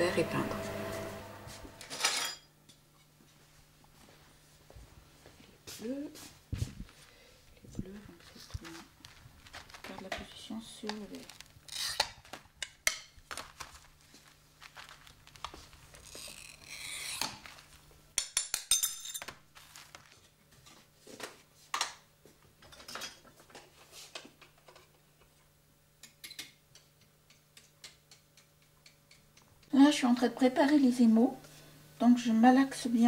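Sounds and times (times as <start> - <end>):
glass cutter scoring glass: 11.7 - 12.1
glass pieces clinking: 18.4 - 19.3.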